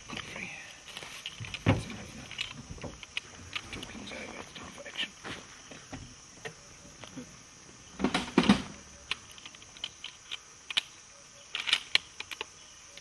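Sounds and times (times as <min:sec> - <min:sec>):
high insect drone: 0:00.0 - 0:13.0
rifle handling clicks and rustles: 0:00.1 - 0:04.0, 0:08.1 - 0:10.9, 0:11.5 - 0:12.5.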